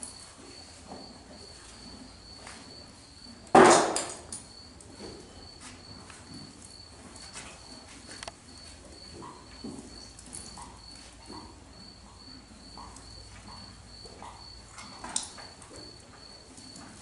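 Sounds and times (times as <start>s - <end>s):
cricket chirping: 0.0s - 17.0s.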